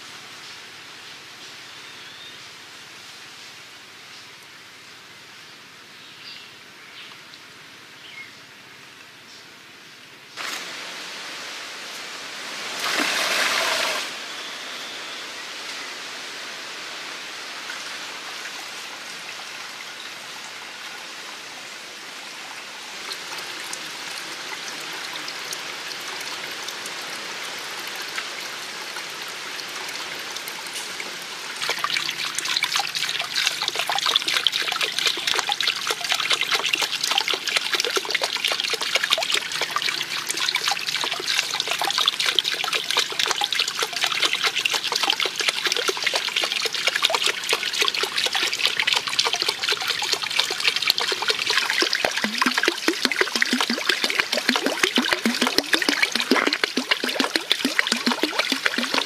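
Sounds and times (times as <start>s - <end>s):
water trickling into pool: 12.7s - 14.2s, 17.6s - 59.0s
drips and spatters: 22.9s - 59.0s.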